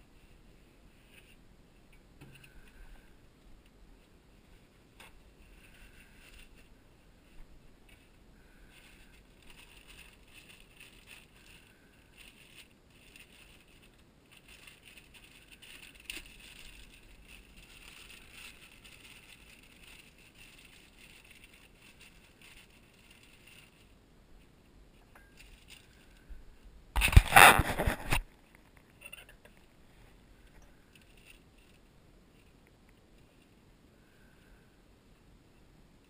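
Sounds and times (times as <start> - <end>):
plastic bag rustling: 5.4 - 24.0, 25.4 - 26.2.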